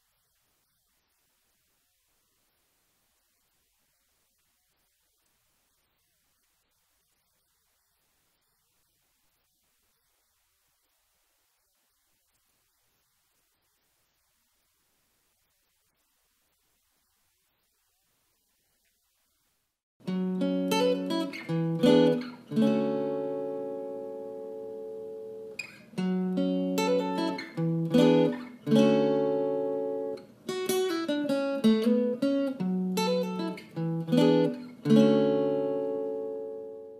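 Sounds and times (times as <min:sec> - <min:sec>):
acoustic guitar strumming: 0:20.0 - 0:36.9.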